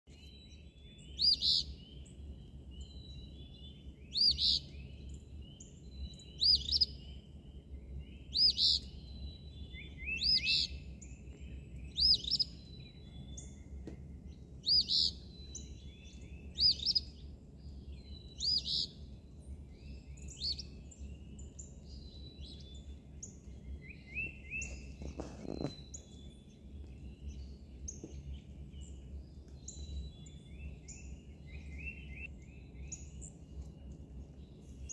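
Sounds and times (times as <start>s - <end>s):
bird singing two-part song: 0.1s - 2.2s, 5.6s - 10.8s
birds chirping faintly: 0.1s - 34.9s
low steady rumble: 0.2s - 34.9s.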